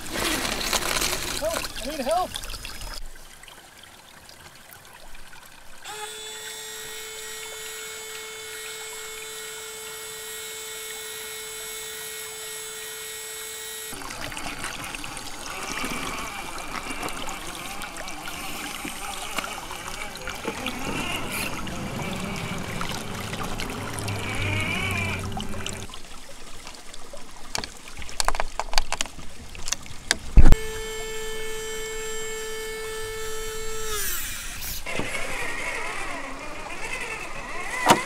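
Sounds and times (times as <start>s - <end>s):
creek water trickling: 0.0s - 38.0s
toy car motor whining: 5.8s - 25.9s, 30.5s - 38.0s.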